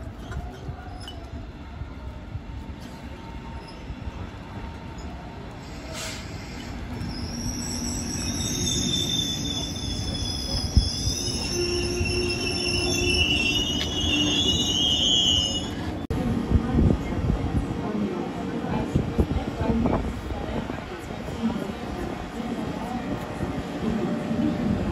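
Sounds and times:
train rumbling into platform: 0.0s - 24.9s
train wheels and brakes squealing: 3.3s - 15.9s.

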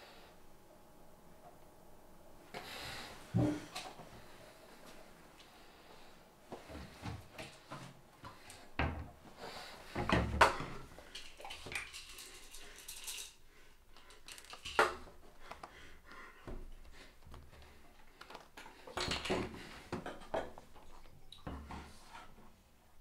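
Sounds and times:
pill bottle and tablets handled: 14.0s - 14.9s, 18.2s - 19.4s.

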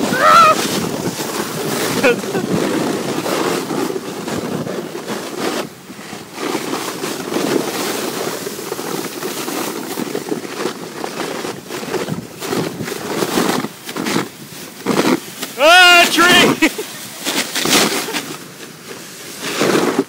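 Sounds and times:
wind on microphone: 0.0s - 6.3s
sled scraping over snow: 0.0s - 20.0s.

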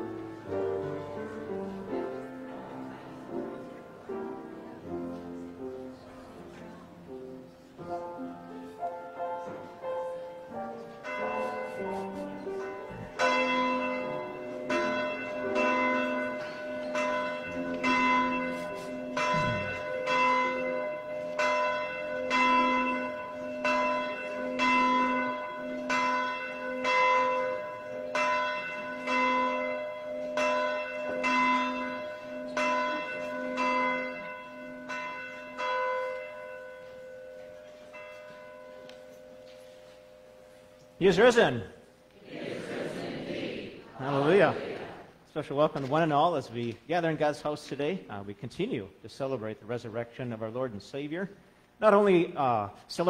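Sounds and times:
church bell tolling: 0.0s - 6.2s, 7.8s - 41.2s.

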